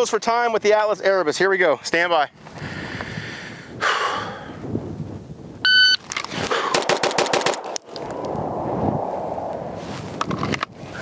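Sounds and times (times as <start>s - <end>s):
pistol shots in quick succession: 6.7s - 7.8s.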